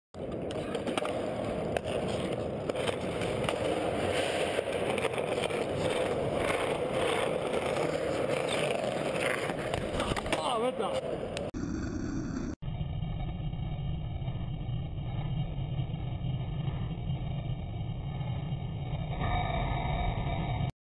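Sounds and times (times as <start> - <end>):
skateboard wheels rolling on concrete: 0.2 - 12.5.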